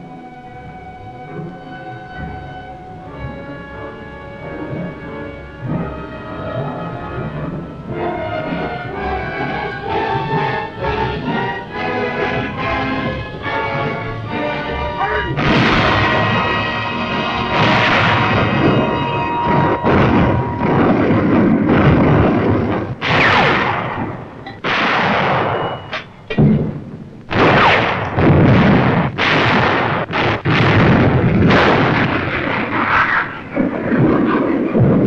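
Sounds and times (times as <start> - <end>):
orchestral music: 0.0 - 25.6
artillery booms: 4.6 - 35.0.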